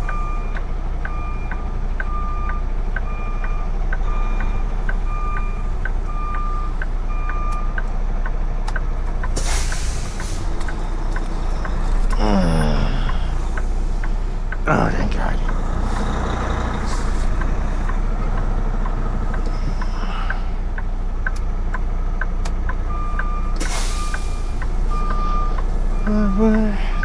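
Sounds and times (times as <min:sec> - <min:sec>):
truck reverse alarm beeping: 0:00.0 - 0:07.9, 0:09.2 - 0:13.6, 0:22.6 - 0:27.0
diesel engine idling: 0:00.0 - 0:27.0
short hiss of air: 0:09.4 - 0:10.4.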